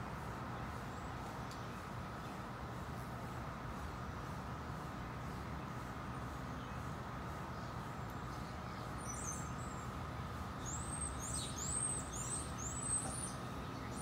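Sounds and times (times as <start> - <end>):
bird chirping: 5.5 - 14.0.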